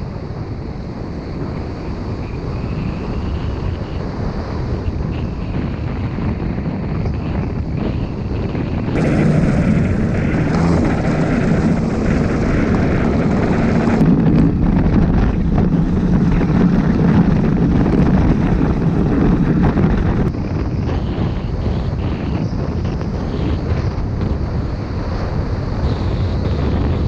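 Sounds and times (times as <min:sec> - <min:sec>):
wind buffeting microphone: 0:00.0 - 0:27.0
motorcycle engine running: 0:08.9 - 0:20.4.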